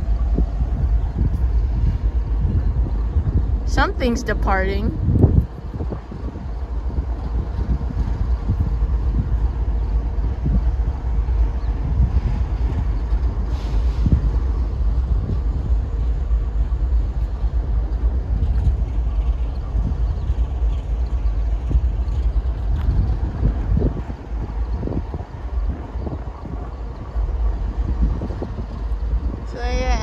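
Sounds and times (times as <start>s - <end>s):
train rumbling: 0.0s - 30.0s.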